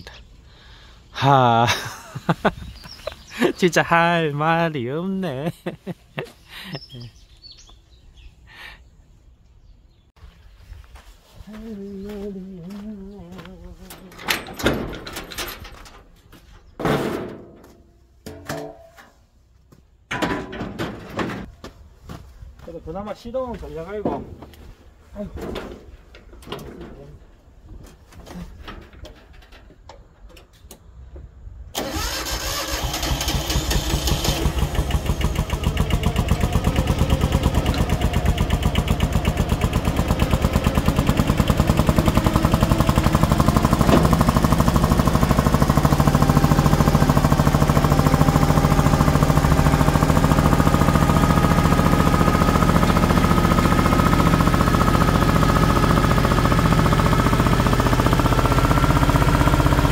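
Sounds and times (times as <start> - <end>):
diesel engine cranking on starter: 31.7 - 59.9
diesel engine running: 31.8 - 59.9.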